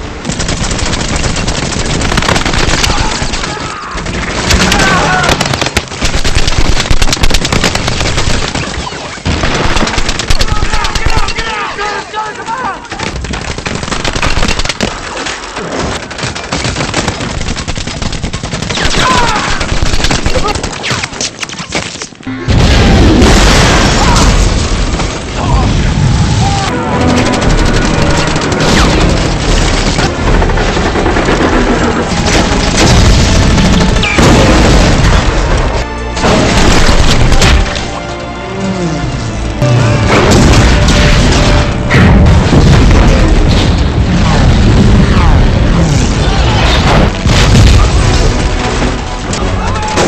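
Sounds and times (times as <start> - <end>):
machine-gun fire: 0.2 - 11.4, 13.1 - 15.0, 16.1 - 21.0, 26.8 - 37.8
explosions: 22.5 - 37.8, 39.6 - 49.3
movie music: 25.2 - 50.0.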